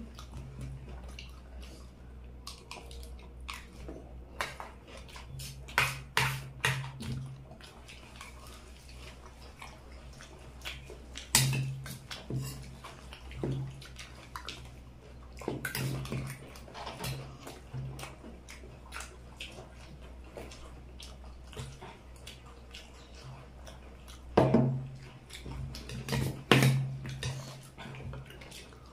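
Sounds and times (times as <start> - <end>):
wet eating sounds: 0.0 - 28.9.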